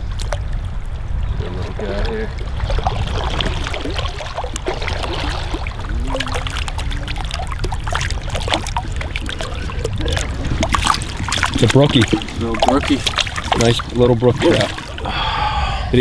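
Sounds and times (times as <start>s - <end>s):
creek rushing: 1.4s - 15.2s
fish splashing at surface: 2.5s - 15.0s.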